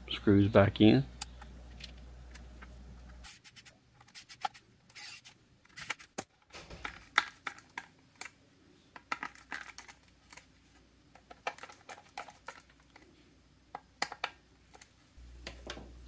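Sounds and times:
screwdrivers turning screws: 3.2s - 6.2s.

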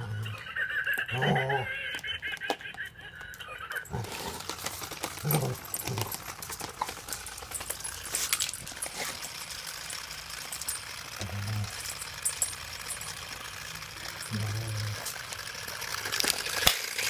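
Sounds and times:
dog grumbling: 0.0s - 0.4s, 1.1s - 1.8s, 3.8s - 4.5s, 5.2s - 6.2s, 11.2s - 11.9s, 14.2s - 15.2s
electronic giggle toy: 0.0s - 4.3s.

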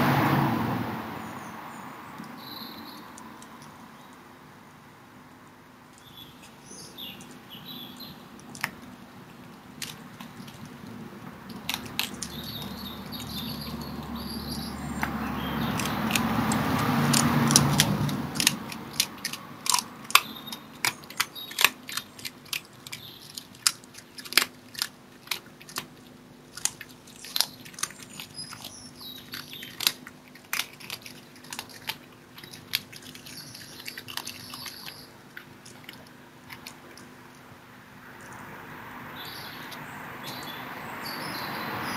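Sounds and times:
birds singing: 1.2s - 4.2s, 6.0s - 8.6s, 11.5s - 24.2s, 26.9s - 35.6s, 39.1s - 41.9s
fox crunching meat: 5.8s - 37.6s.

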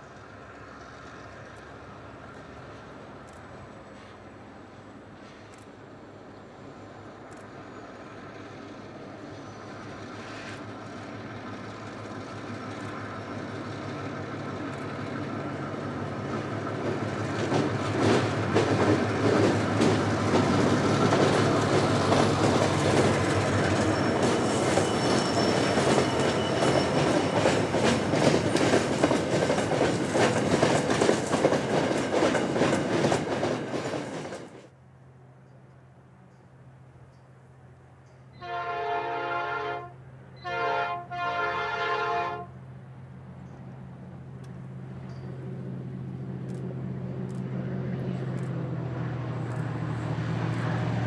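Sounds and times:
diesel locomotives passing: 0.0s - 51.0s
train wheels clacking over rail joints: 10.0s - 34.7s.

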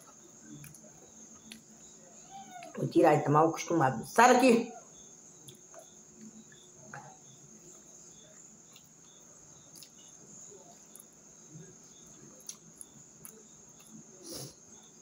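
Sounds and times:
faint chewing clicks: 0.0s - 1.8s, 5.4s - 7.9s, 8.6s - 10.2s, 10.8s - 11.2s, 12.0s - 14.1s
cricket trilling: 0.0s - 15.0s.

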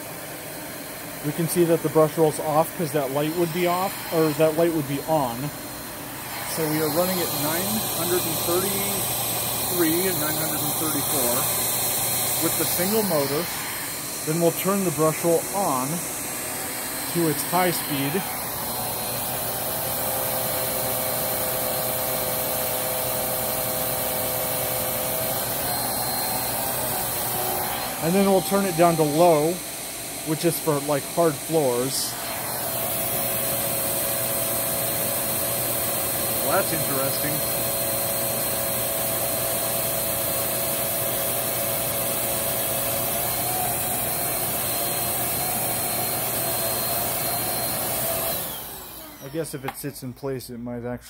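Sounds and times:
brush roll motor whine: 0.0s - 49.6s
vacuum cleaner air rushing: 0.0s - 49.8s.

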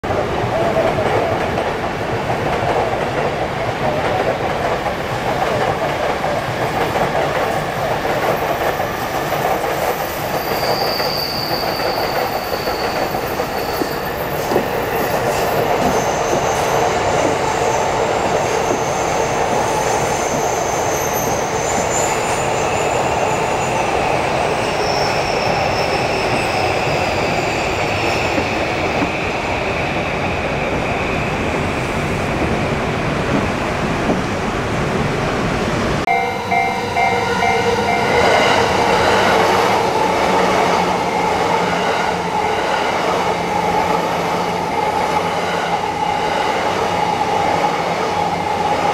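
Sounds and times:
wheels rumbling on rail: 0.0s - 48.9s
high wheel squeals: 9.8s - 29.8s.

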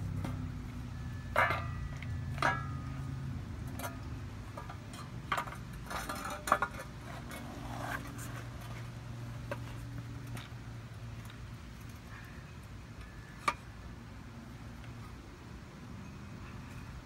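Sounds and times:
sharp metallic clank: 1.1s - 3.0s.

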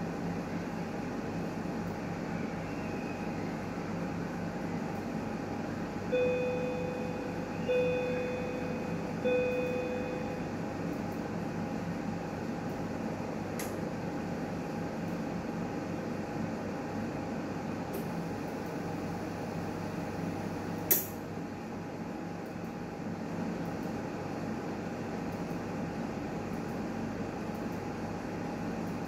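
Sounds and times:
alert beeps: 6.2s - 10.3s.

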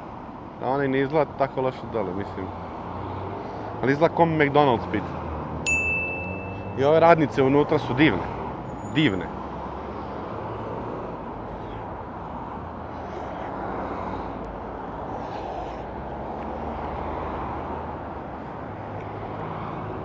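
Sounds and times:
busy road traffic hum: 0.0s - 20.0s.

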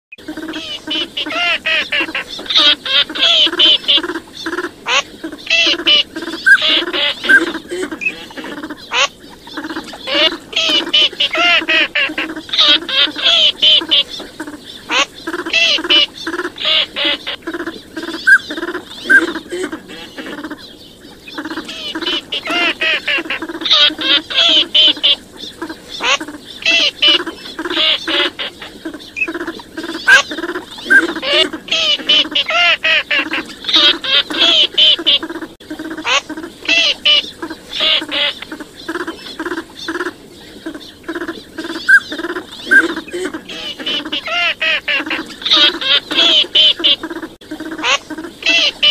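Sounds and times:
ducks quacking and calling: 0.2s - 48.9s.

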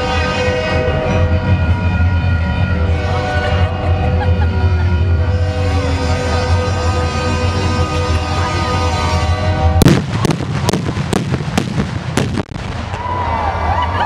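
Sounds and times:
music with low drone: 0.0s - 11.2s
fireworks bangs: 9.8s - 13.2s.

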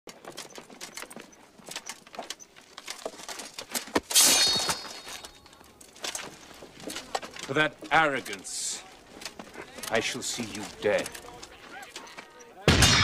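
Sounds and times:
scuffing footsteps: 4.8s - 12.3s.

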